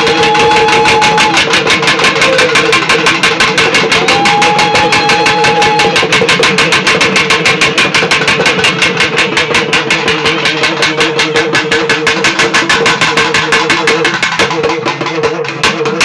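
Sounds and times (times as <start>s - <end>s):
rapid drumbeat: 0.0s - 16.0s.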